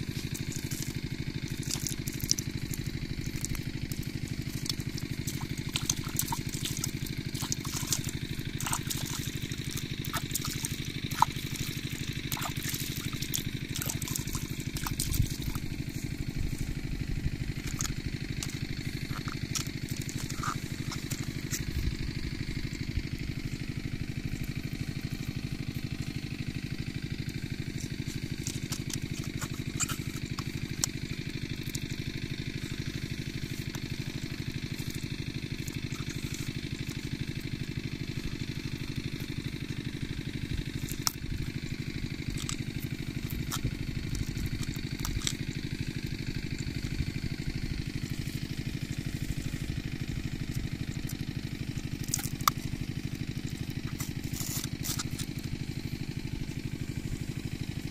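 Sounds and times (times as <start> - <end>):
small engine running: 0.0 - 57.9.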